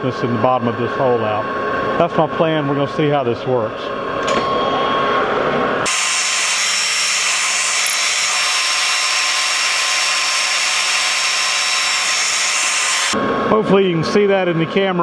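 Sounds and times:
cutting tool hissing on metal: 0:05.8 - 0:13.2
metal lathe running: 0:05.8 - 0:13.2.

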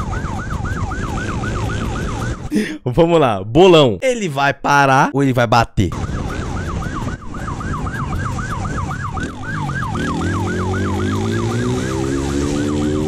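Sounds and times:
police siren yelping: 0:00.0 - 0:02.5, 0:05.9 - 0:13.0
motorcycle engine revving: 0:00.4 - 0:02.4, 0:06.2 - 0:13.0.

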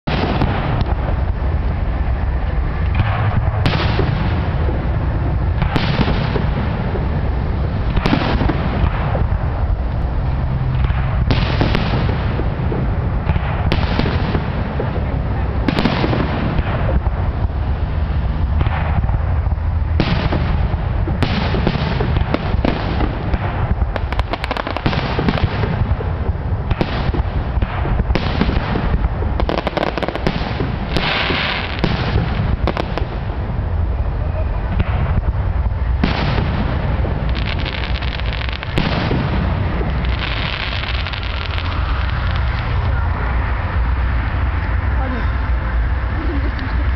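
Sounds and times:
fireworks hissing: 0:00.0 - 0:46.9
low rolling rumble: 0:00.0 - 0:46.9
firework shells bursting: 0:19.9 - 0:33.4, 0:35.9 - 0:43.0.

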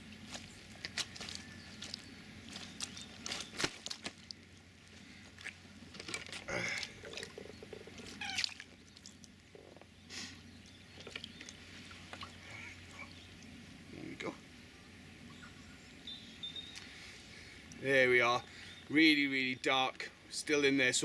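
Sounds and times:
rustling: 0:00.0 - 0:10.4
water pouring and splashing: 0:05.2 - 0:09.6, 0:10.8 - 0:12.5.

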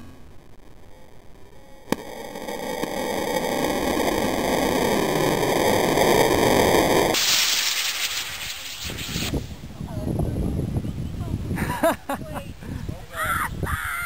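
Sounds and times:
rocket motor rushing hiss: 0:00.9 - 0:09.6.

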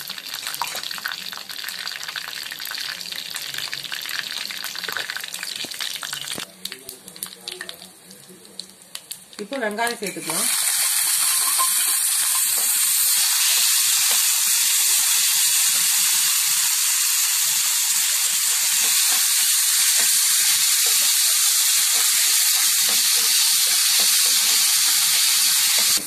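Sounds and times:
onions sizzling in hot oil: 0:00.0 - 0:06.5, 0:07.2 - 0:26.0
metal spatula stirring: 0:11.1 - 0:12.6.

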